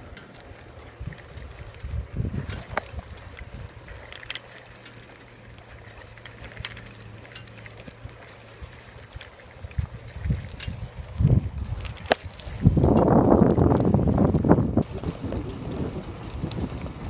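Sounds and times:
low steady hum: 0.0s - 17.0s
clicks and rattles: 2.4s - 10.9s.

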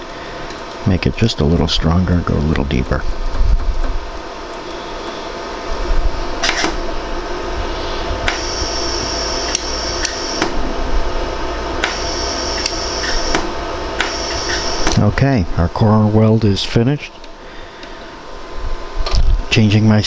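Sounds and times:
machine hum: 0.0s - 20.0s
high-pitched whine: 4.6s - 17.2s
laser welder clicks: 6.4s - 6.8s, 8.3s - 10.6s, 11.8s - 15.0s.

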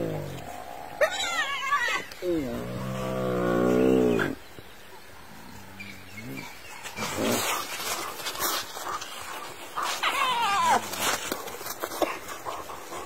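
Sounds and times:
low moan: 0.0s - 4.4s
wild dogs high-pitched yelps: 0.5s - 2.2s, 7.0s - 11.4s.

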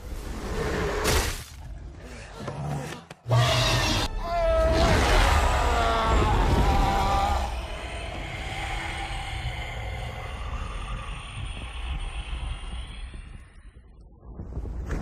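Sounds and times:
dragon roar: 2.4s - 13.5s.

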